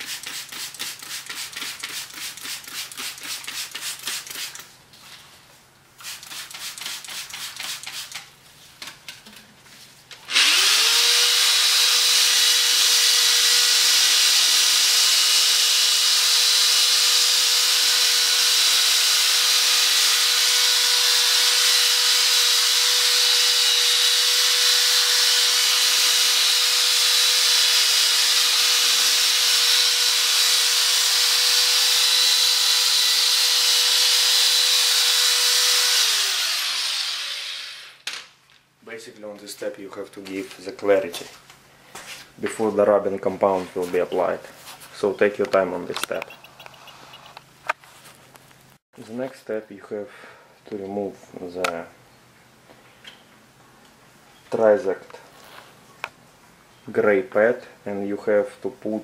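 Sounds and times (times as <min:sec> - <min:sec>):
spray bottle squirts: 0:00.0 - 0:04.6, 0:06.0 - 0:08.3
drill whining: 0:10.3 - 0:38.0.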